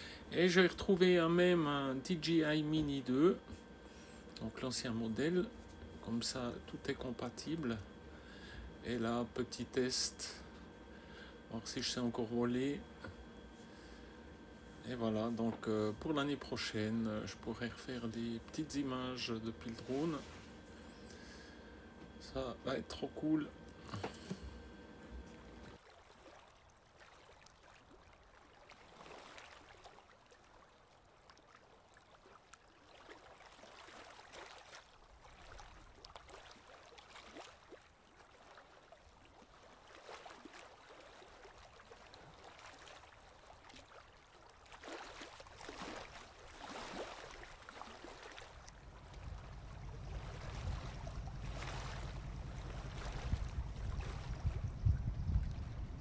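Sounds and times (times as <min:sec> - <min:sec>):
water sloshing and lapping: 0:12.6 - 0:56.0
low rumble: 0:48.7 - 0:56.0.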